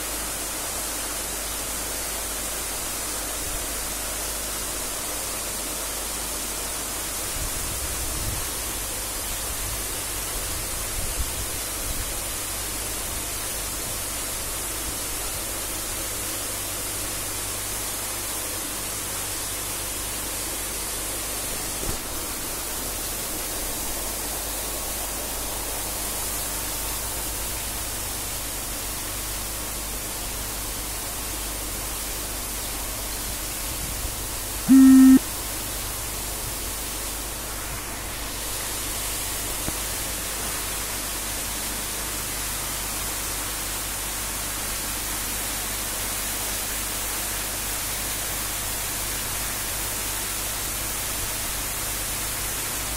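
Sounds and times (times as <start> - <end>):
faint low hum: 34.7 - 35.2.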